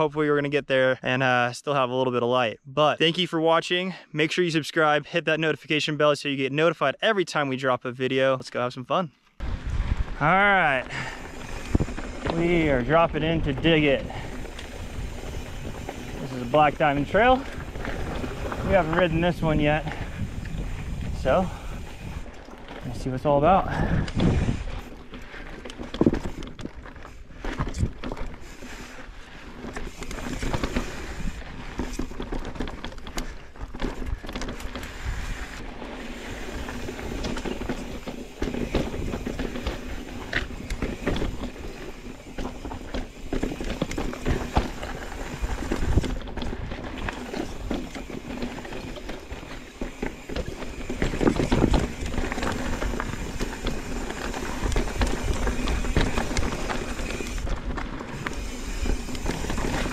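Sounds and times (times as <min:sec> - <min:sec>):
wind rumble on microphone: 0:09.4 - 0:10.3, 0:17.6 - 0:24.9, 0:50.9 - 0:59.9
tyres crunching over dirt and rock: 0:09.6 - 0:59.9.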